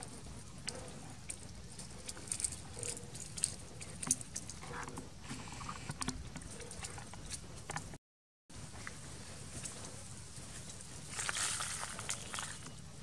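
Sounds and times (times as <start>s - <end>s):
low outdoor background: 0.0s - 13.0s
dry leaves crackling and rustling: 11.1s - 12.6s.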